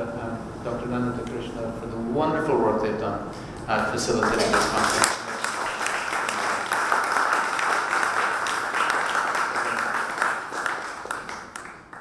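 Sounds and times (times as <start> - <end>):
audience applauding: 3.8 - 12.0.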